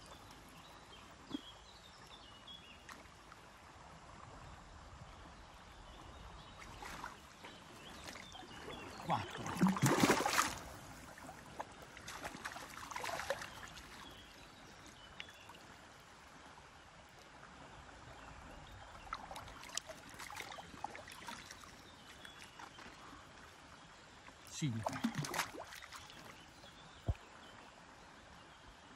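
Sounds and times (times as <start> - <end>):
water splashing and sloshing: 6.3 - 27.3
water trickling: 23.8 - 27.3.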